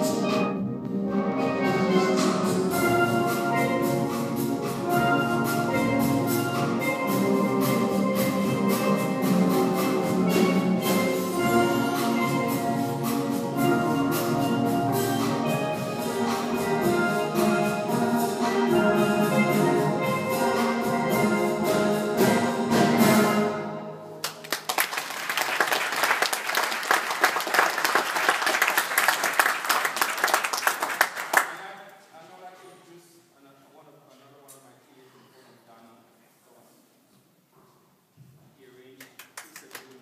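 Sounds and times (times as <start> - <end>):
steel pan ensemble playing: 0.0 - 31.5
audience applause: 24.2 - 31.7, 39.0 - 40.0.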